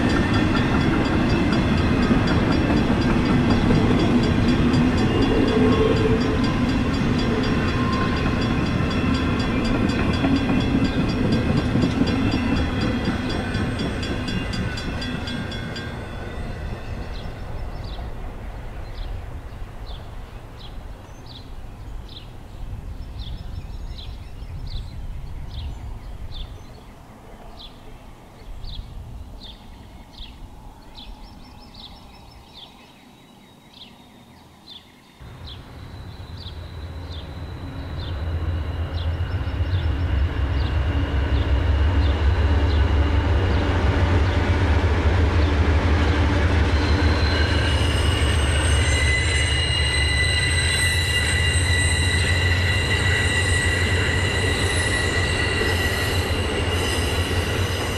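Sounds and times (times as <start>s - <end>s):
steady high tones: 46.6s - 57.9s.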